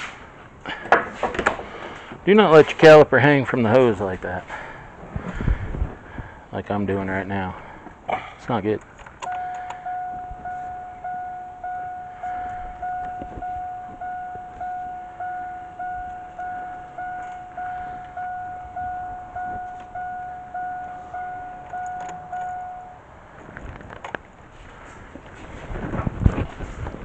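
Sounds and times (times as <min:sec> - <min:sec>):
vehicle warning chime dinging: 0:09.2 - 0:23.2.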